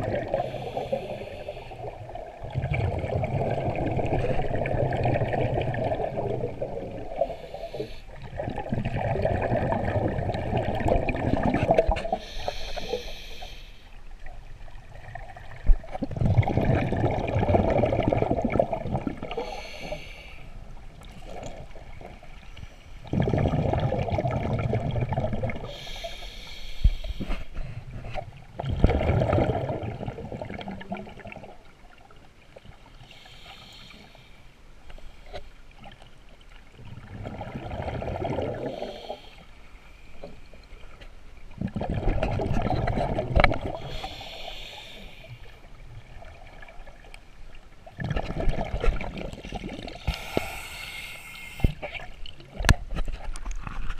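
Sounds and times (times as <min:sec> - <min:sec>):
regulator hissing inhalations: 0:00.3 - 0:01.9, 0:07.2 - 0:08.1, 0:12.1 - 0:13.9, 0:19.4 - 0:20.5, 0:25.6 - 0:27.7, 0:33.1 - 0:34.5, 0:38.7 - 0:39.5, 0:43.8 - 0:45.6, 0:50.0 - 0:51.8
bubbling underwater exhalations: 0:01.9 - 0:07.4, 0:08.2 - 0:12.2, 0:15.0 - 0:19.6, 0:23.1 - 0:25.7, 0:28.6 - 0:31.5, 0:36.9 - 0:39.1, 0:41.6 - 0:44.1, 0:48.0 - 0:50.5.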